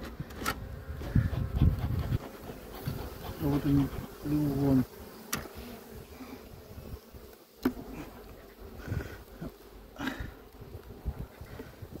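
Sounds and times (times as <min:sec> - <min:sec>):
honeybees buzzing: 0:00.0 - 0:12.0
hive tool clicking on wood: 0:05.3 - 0:05.5.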